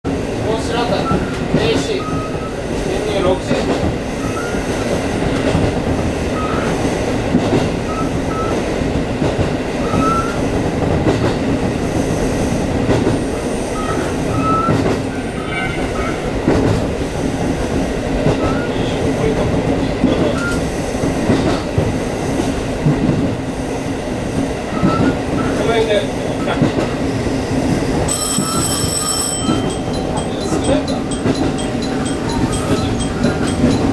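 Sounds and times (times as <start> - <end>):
railcar engine and wheels rumble: 0.0 - 33.9
high wheel squeals: 28.1 - 29.8.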